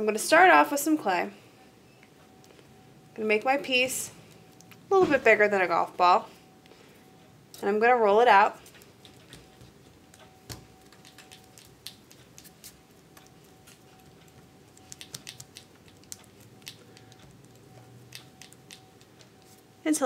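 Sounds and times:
faint steady hum: 0.0s - 20.0s
palm rolling clay on tabletop: 8.4s - 20.0s.

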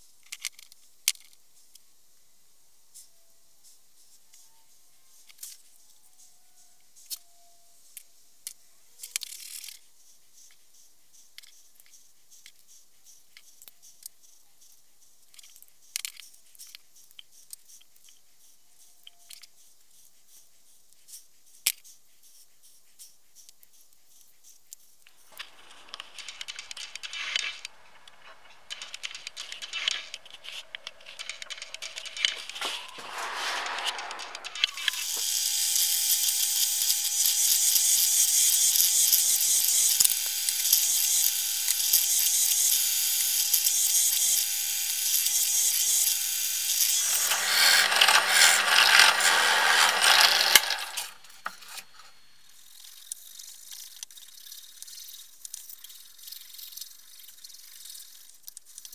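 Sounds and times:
gloved hands clicking and rustling: 24.7s - 33.1s
rustling scraping with knocks: 25.1s - 35.2s, 46.9s - 52.1s.

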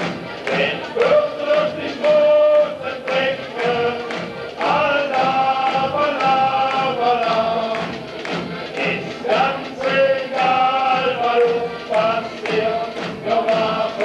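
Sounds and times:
song with singing over a beat: 0.0s - 14.0s.

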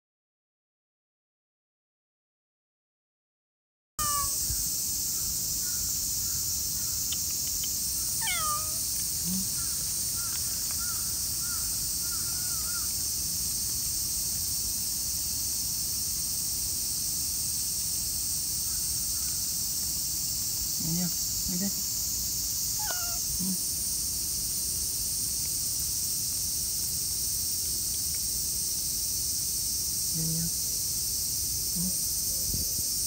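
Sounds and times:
cat meowing: 4.0s - 4.4s, 8.2s - 8.8s, 22.8s - 23.3s
small birds chirping: 4.0s - 12.9s, 22.6s - 23.6s.

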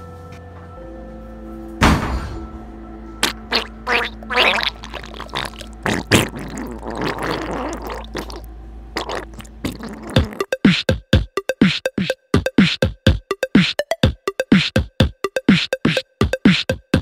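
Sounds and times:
loud thump: 1.8s - 2.6s
wet bowel movement sputtering: 3.2s - 12.8s.

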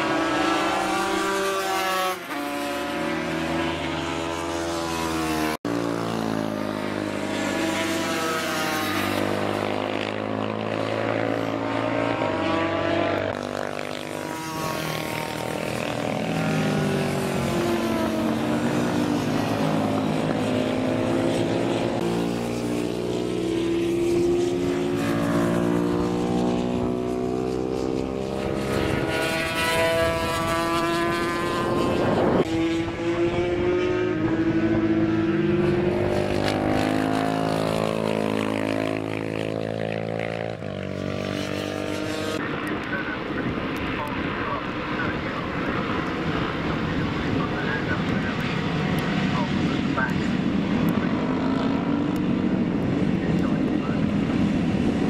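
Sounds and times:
racing motorcycles passing at speed: 0.0s - 55.0s.

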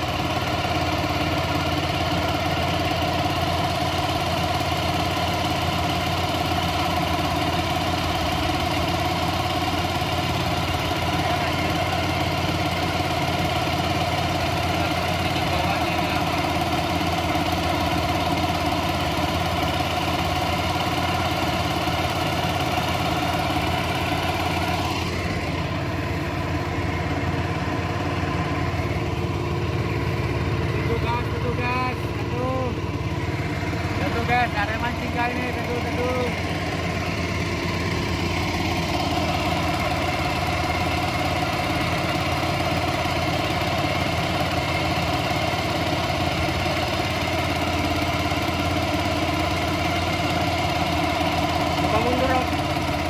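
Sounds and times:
boat outboard engine running: 0.0s - 53.0s.

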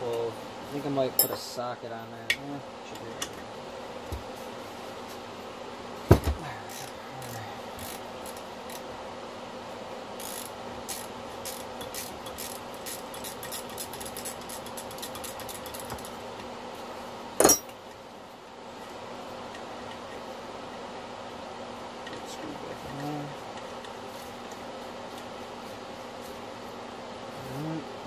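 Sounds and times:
wrench dropped with metallic clatter: 1.2s - 1.5s, 17.4s - 17.8s
ratchet wrench clicking: 6.7s - 8.8s, 10.2s - 16.1s.

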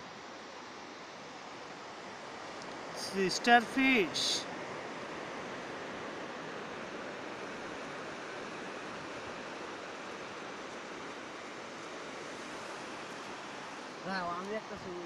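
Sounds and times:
surf washing on sandy beach: 0.0s - 15.0s.

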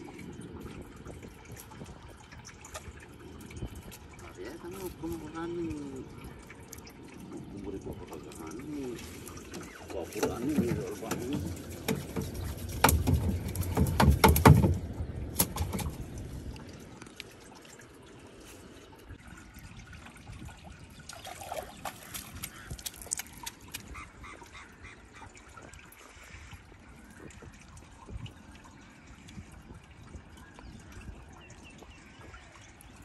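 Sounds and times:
water dripping and trickling: 0.0s - 33.0s
knocks and thumps against boat hull: 9.6s - 16.0s.

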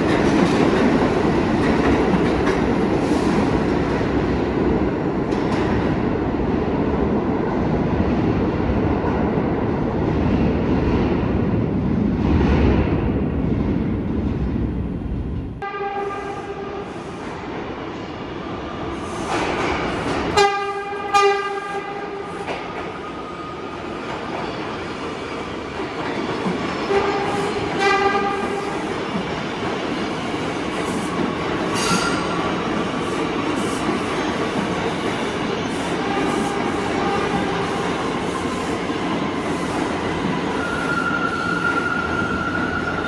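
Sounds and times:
subway train rattling: 0.0s - 43.0s
train horn blasts: 15.6s - 16.9s, 20.4s - 22.4s, 26.9s - 28.6s.

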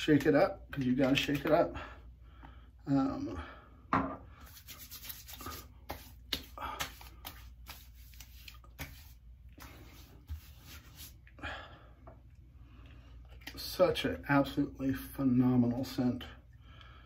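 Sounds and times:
hands rubbing together: 4.4s - 11.3s
light slaps on skin: 5.9s - 9.0s.

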